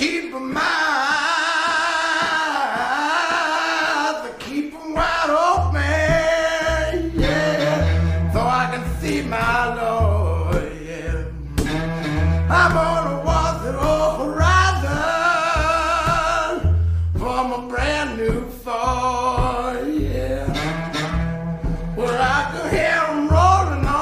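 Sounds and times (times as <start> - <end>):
man singing slow song: 0.0 - 24.0
sparse bass line: 5.0 - 24.0.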